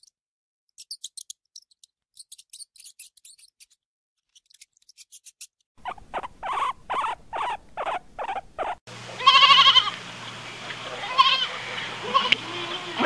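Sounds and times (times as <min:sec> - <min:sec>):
guinea pigs squeaking: 0:00.7 - 0:09.8
goat bleating: 0:09.2 - 0:10.0, 0:10.9 - 0:13.0.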